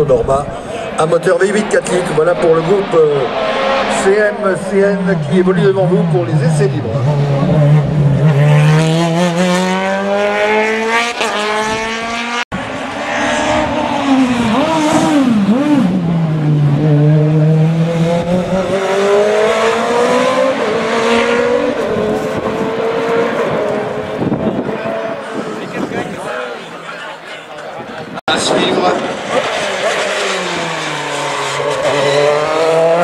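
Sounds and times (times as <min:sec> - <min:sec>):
race car engine revving: 0:00.0 - 0:26.5, 0:28.3 - 0:33.0.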